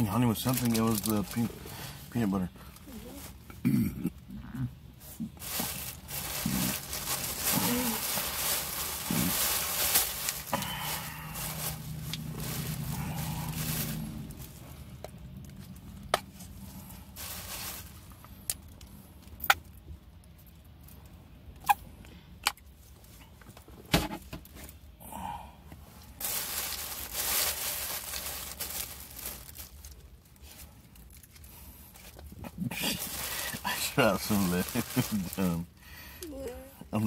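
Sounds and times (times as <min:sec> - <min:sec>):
rustling and crinkling: 0:00.0 - 0:03.5, 0:05.0 - 0:21.1, 0:25.9 - 0:35.8.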